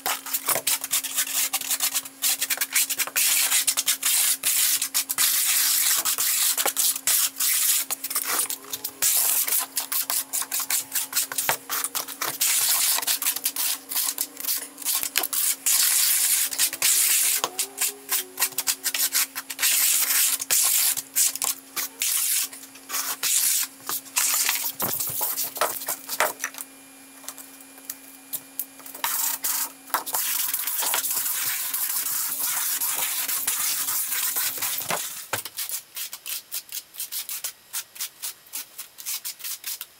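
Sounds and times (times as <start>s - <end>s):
faint steady hum: 0.0s - 39.9s
trowel scraping a floor: 0.1s - 26.3s
float rubbing membrane: 7.1s - 20.2s.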